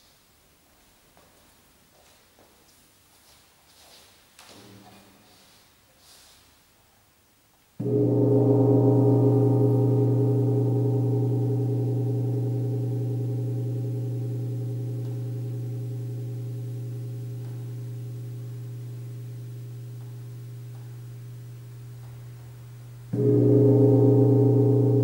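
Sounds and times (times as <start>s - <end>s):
gong struck and ringing: 7.8s - 25.0s.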